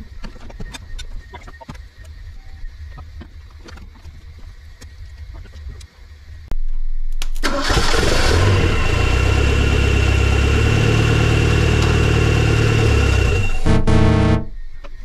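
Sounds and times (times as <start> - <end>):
car engine starting and idling: 7.4 - 14.5
thin high whine: 12.1 - 15.0.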